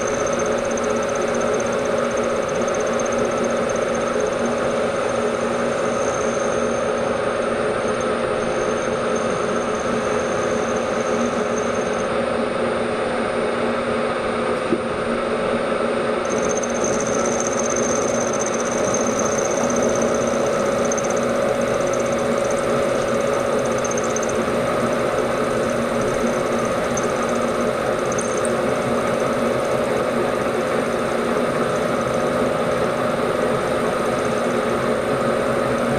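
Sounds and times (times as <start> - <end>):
thin high whine: 0.0 - 12.3, 16.2 - 30.1
milling machine hum: 0.0 - 35.9.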